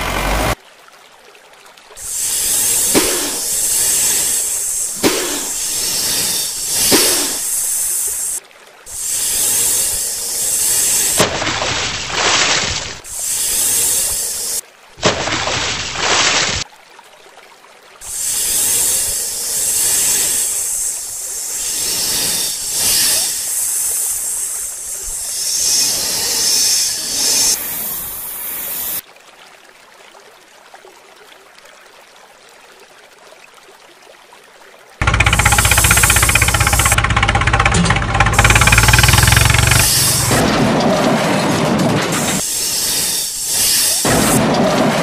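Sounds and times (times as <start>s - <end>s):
loud hissing: 2.0s - 12.2s, 13.0s - 14.6s, 18.1s - 29.0s, 35.0s - 40.4s, 42.2s - 44.4s
engine-like rumble with fast beat: 35.0s - 40.5s.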